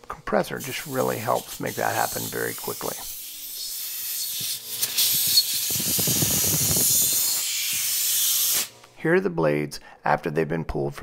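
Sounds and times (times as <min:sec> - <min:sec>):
compressed air hissing: 0:00.6 - 0:08.8.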